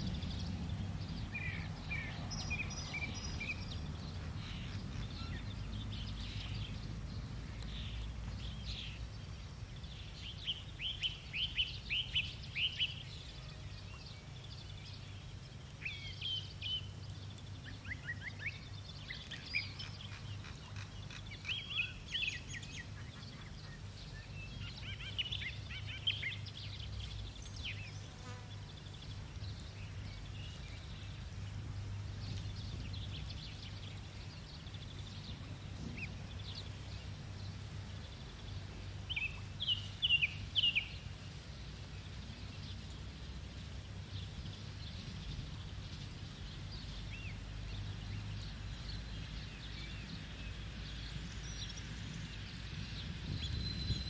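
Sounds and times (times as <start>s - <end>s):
low steady hum: 0.0s - 54.0s
bird chirps: 53.3s - 54.0s.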